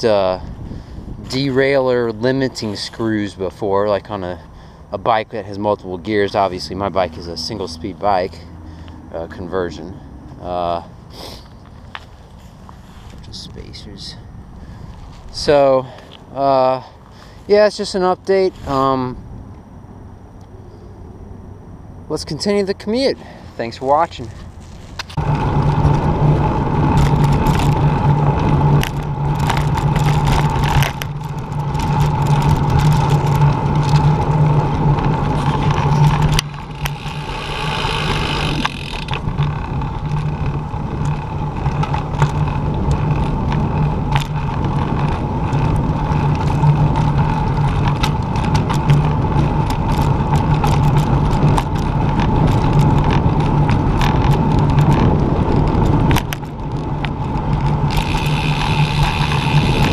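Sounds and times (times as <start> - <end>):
wind rush: 0.0 - 3.0
steady low hum: 0.0 - 59.9
tyres rolling on pavement: 23.4 - 59.9.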